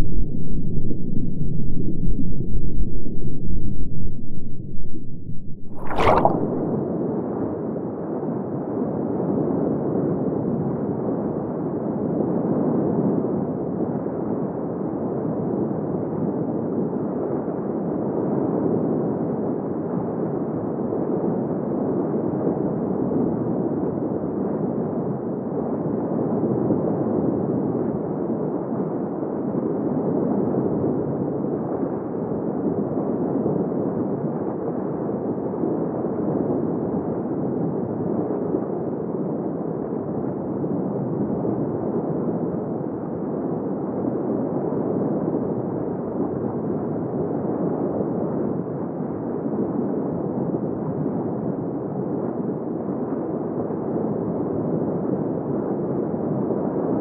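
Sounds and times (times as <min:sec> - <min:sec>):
underwater rushing water: 0:04.4 - 0:06.7.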